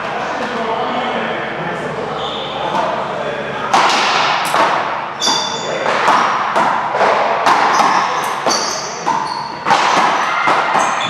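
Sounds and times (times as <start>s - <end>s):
ball hits echoing indoors: 3.6s - 11.0s.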